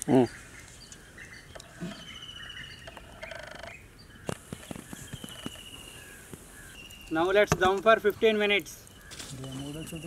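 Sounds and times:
birds chirping: 0.0s - 10.0s
bird rattling call: 0.6s - 7.4s.

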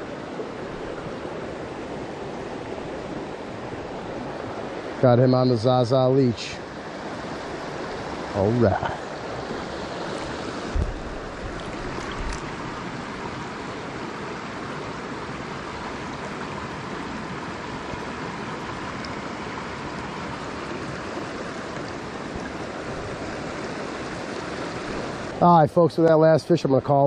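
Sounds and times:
creek water running over rocks: 0.0s - 27.0s
soft low knocks: 10.7s - 12.4s.

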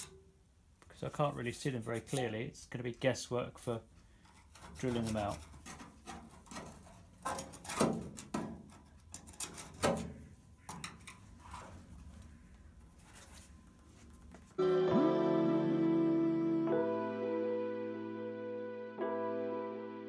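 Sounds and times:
steel pick scraping sheet steel: 4.2s - 11.6s.

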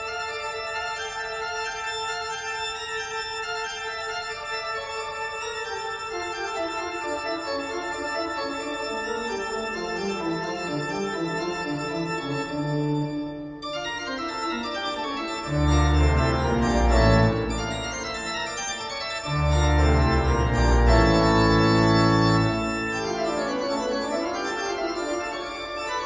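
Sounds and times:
organ held chords: 0.0s - 26.0s
low bass organ notes: 15.5s - 18.4s, 19.3s - 23.4s.

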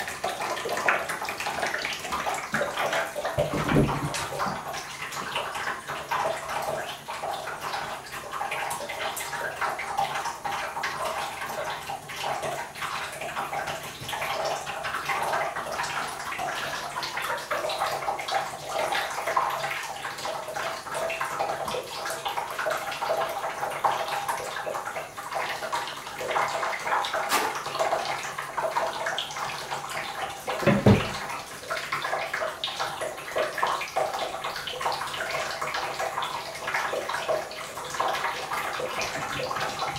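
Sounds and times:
tap water filling bathtub: 0.0s - 39.9s
thump: 3.4s - 4.4s, 30.6s - 31.2s.

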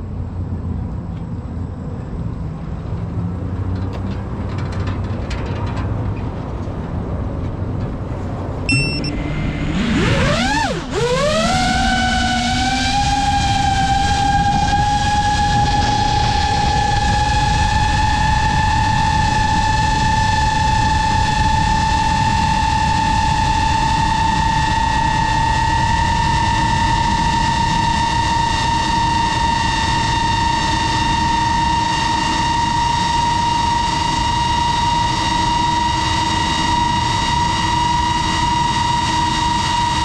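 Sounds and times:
wind noise: 0.0s - 40.0s
drone motors whining: 8.7s - 40.0s.

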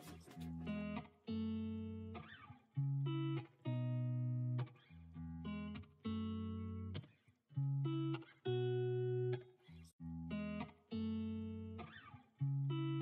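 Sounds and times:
guitar chords: 0.0s - 13.0s.

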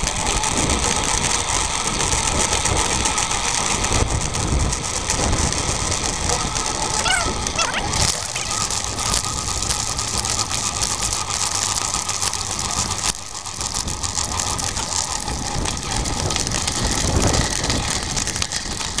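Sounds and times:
wind noise on microphone: 0.0s - 11.3s, 12.3s - 19.0s
bicycle rattling over gravel: 0.0s - 19.0s.

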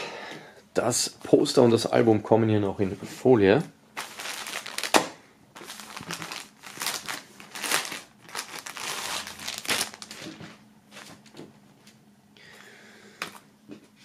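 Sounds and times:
plastic bag crinkling: 4.0s - 11.3s.

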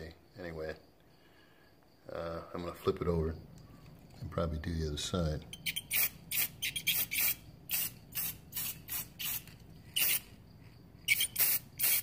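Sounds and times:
spray paint can hissing: 5.6s - 10.4s, 11.1s - 12.0s.

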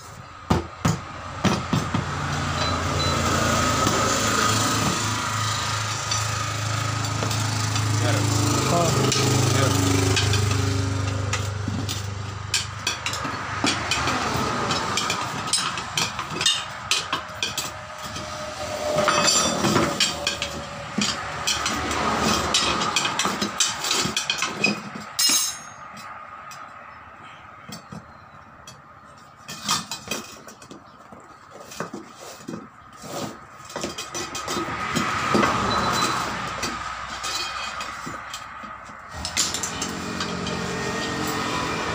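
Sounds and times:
tyre levers scraping a wheel rim: 29.2s - 41.9s.

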